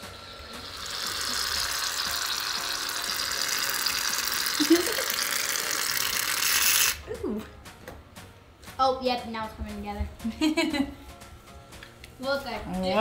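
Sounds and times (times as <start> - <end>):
aerosol can spraying foam: 0.7 - 7.0.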